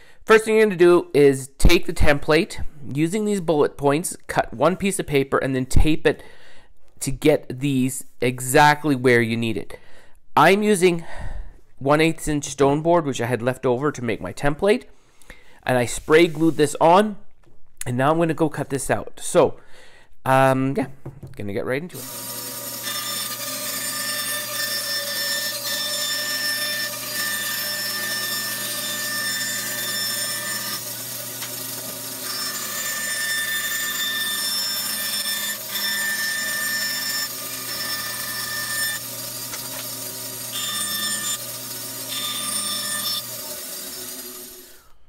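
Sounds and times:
bandsaw cutting wood: 0:22.0 - 0:45.0.

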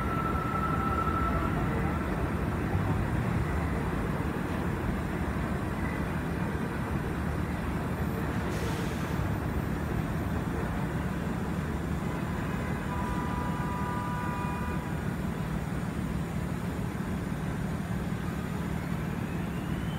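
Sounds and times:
faint high squeal: 0:00.0 - 0:02.1, 0:18.8 - 0:19.9
city traffic: 0:00.0 - 0:19.9
elevated subway trains rumbling: 0:00.0 - 0:19.9.

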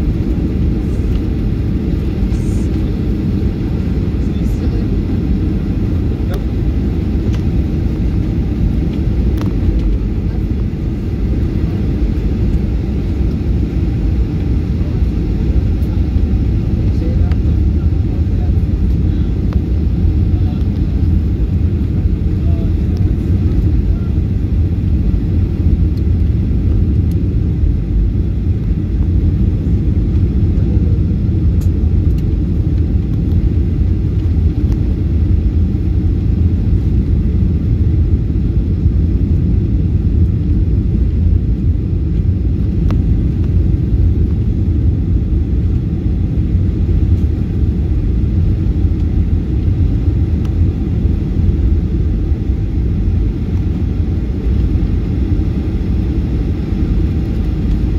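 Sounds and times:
jet engine cabin rumble: 0:00.0 - 0:57.9.

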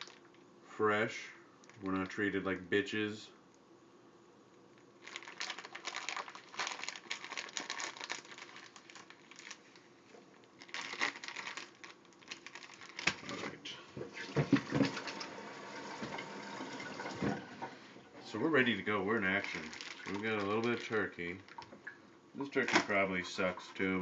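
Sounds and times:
plastic package crinkling: 0:00.0 - 0:00.4, 0:04.7 - 0:13.5, 0:18.8 - 0:21.8.

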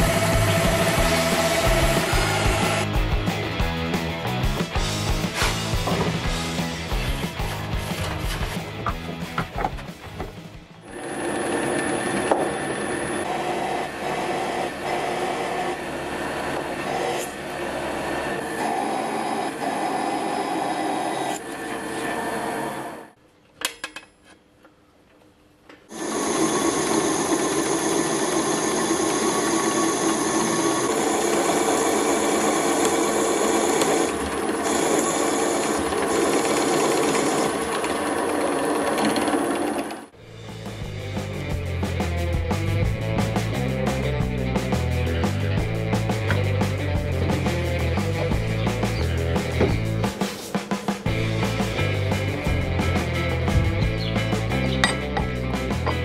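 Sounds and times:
drill bit grinding metal: 0:00.0 - 0:02.9, 0:25.9 - 0:40.1
drill press motor whine: 0:00.0 - 0:02.9, 0:10.8 - 0:23.1, 0:25.9 - 0:40.1.

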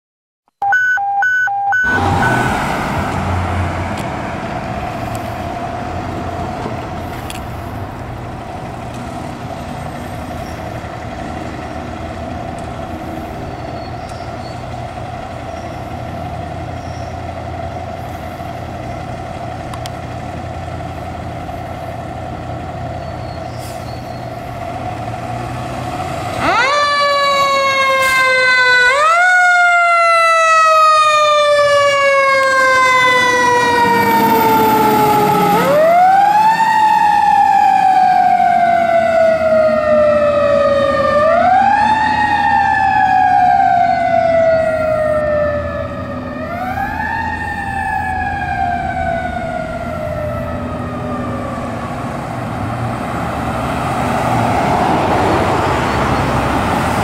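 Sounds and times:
short beeps: 0:00.6 - 0:02.5
rising and falling siren: 0:00.6 - 0:17.6, 0:24.2 - 0:57.0
fire engine running: 0:00.8 - 0:57.0.

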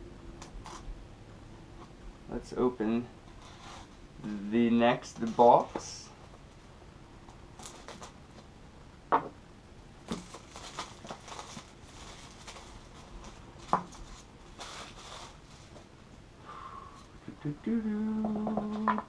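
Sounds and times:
cardboard scraping and rustling: 0:10.1 - 0:15.9.

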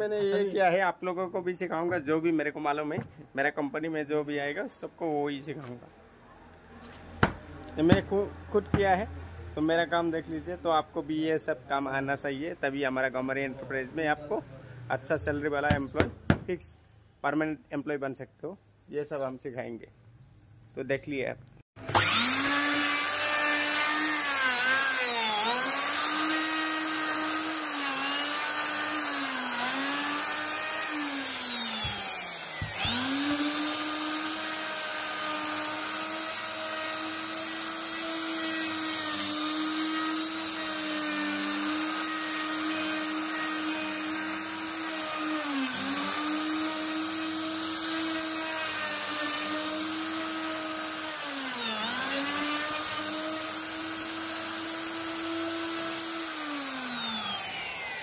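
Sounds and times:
router cutting wood: 0:21.8 - 0:58.0.

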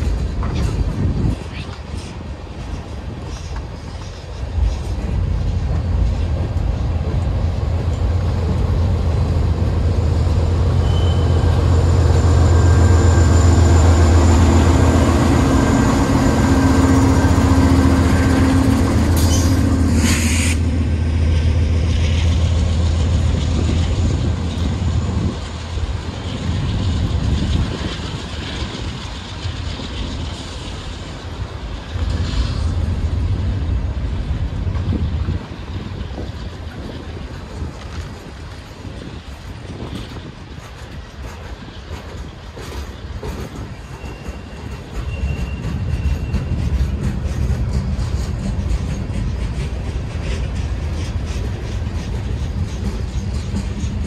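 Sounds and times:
diesel locomotive drone: 0:00.0 - 0:54.0.

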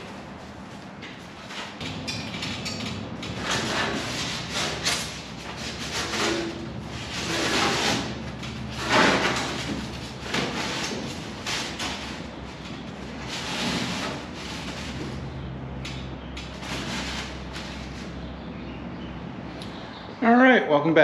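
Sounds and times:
foam board scraping and rustling: 0:03.3 - 0:15.3, 0:16.4 - 0:18.2.

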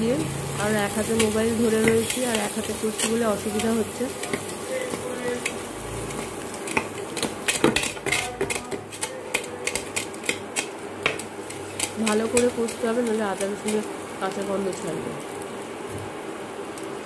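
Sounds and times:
light frying sizzle: 0:00.0 - 0:17.0.

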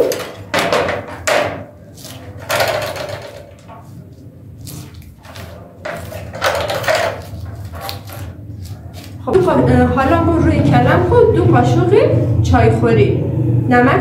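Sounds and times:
low steady hum: 0:00.0 - 0:14.0
gloved hands scraping cabbage: 0:01.8 - 0:02.4, 0:03.8 - 0:09.5.

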